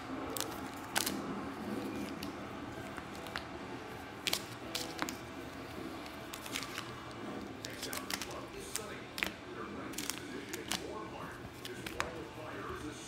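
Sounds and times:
clicks and crinkles of foil packs: 0:06.0 - 0:12.3.

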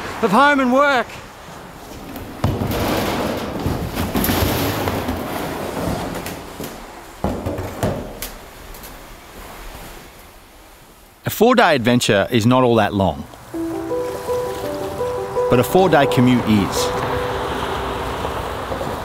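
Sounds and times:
kayak hull scraping on floor: 0:03.6 - 0:06.2.

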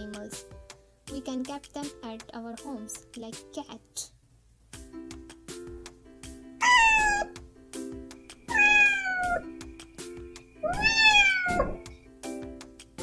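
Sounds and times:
background music: 0:00.0 - 0:13.0
cat meowing: 0:06.6 - 0:07.4, 0:08.5 - 0:09.5, 0:10.6 - 0:11.8.

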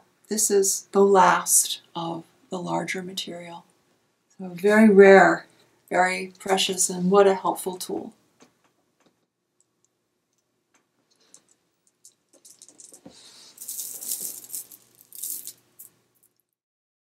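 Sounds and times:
stone beads clicking and rattling: 0:11.1 - 0:16.4.

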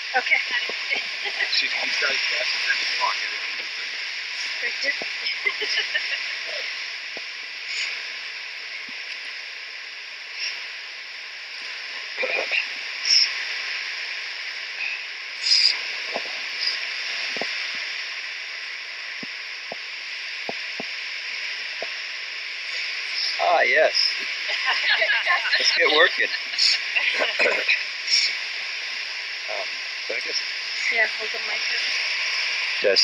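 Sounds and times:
waterfall rushing: 0:00.0 - 0:07.0, 0:22.6 - 0:33.0
soft bursts of noise: 0:00.0 - 0:33.0.

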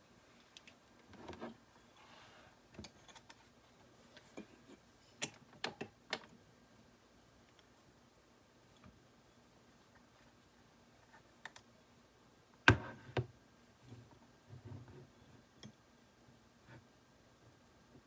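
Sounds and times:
soft handling noise: 0:00.1 - 0:05.6.

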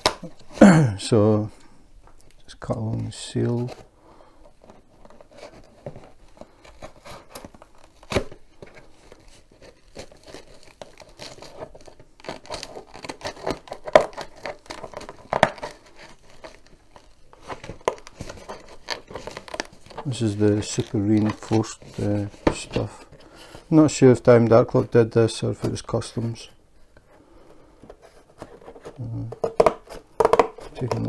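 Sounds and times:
packing tape being cut and torn: 0:09.0 - 0:22.6.

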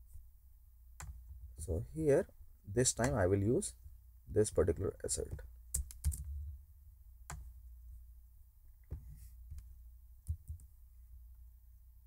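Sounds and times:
low steady hum: 0:00.0 - 0:12.0
mouse and keyboard clicks: 0:05.7 - 0:06.3.

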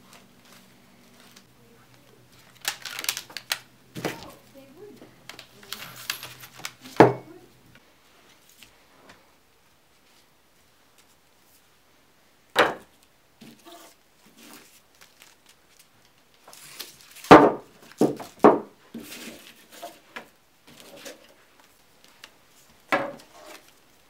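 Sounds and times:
rustling: 0:00.0 - 0:07.0, 0:13.4 - 0:24.0.

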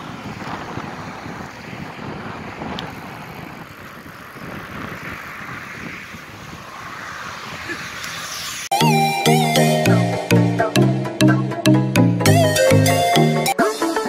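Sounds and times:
wind buffeting microphone: 0:00.0 - 0:08.7.

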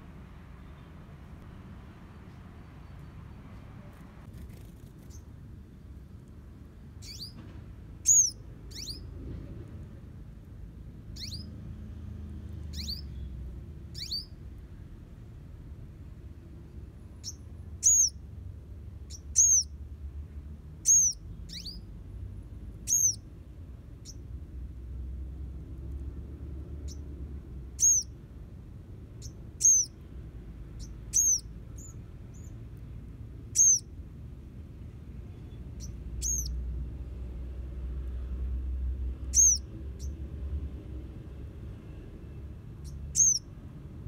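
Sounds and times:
low steady background rumble: 0:00.0 - 0:44.0
bird chirping: 0:00.6 - 0:01.0, 0:04.4 - 0:05.9, 0:06.9 - 0:07.4, 0:08.0 - 0:09.1, 0:11.1 - 0:11.6, 0:12.5 - 0:14.5, 0:16.6 - 0:18.3, 0:18.9 - 0:19.8, 0:20.8 - 0:22.0, 0:22.7 - 0:23.3, 0:23.9 - 0:24.3, 0:26.8 - 0:28.2, 0:29.1 - 0:34.0, 0:34.8 - 0:36.7, 0:39.2 - 0:40.3, 0:42.7 - 0:43.6.

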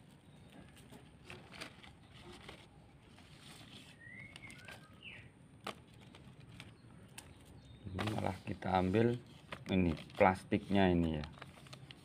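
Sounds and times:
plastic bag crinkling: 0:00.7 - 0:12.0
bird chirps: 0:03.7 - 0:05.4, 0:06.7 - 0:08.2.

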